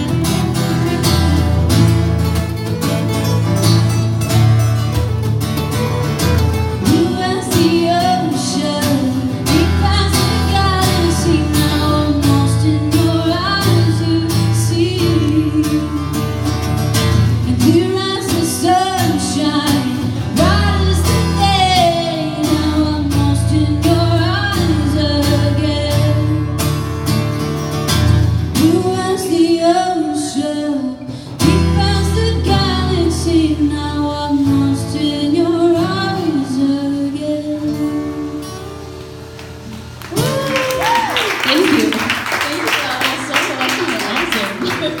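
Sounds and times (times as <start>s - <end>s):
woman singing: 0.0s - 1.8s, 6.8s - 16.4s, 17.3s - 26.6s, 28.5s - 38.6s
acoustic guitars strumming: 0.0s - 45.0s.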